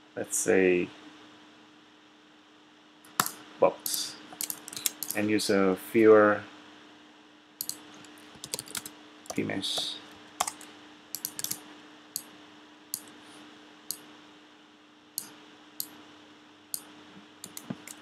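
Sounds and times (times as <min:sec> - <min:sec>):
faint steady hum: 0:00.0 - 0:18.0
computer mouse clicks: 0:04.3 - 0:05.2, 0:07.6 - 0:07.8, 0:10.4 - 0:11.6, 0:13.0 - 0:13.2, 0:16.8 - 0:18.0.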